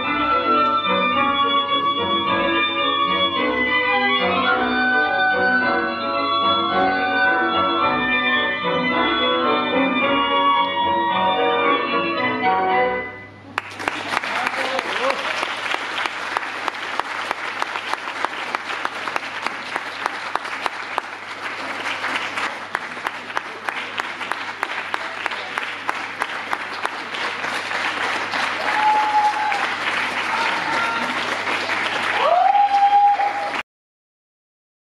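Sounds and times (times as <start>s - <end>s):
audience applauding: 13.6s - 33.6s.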